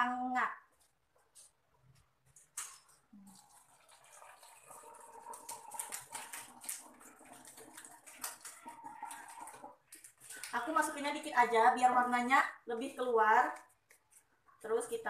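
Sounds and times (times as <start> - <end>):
water pouring into plastic bottle: 2.4 - 11.2.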